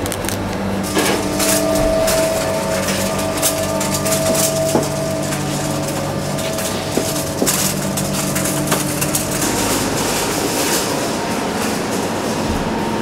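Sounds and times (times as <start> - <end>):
mechanical hum of equipment: 0.0 - 13.0
rack on casters rolling: 0.0 - 13.0
trays clicking and rattling: 0.0 - 13.0
high tone: 0.8 - 11.4.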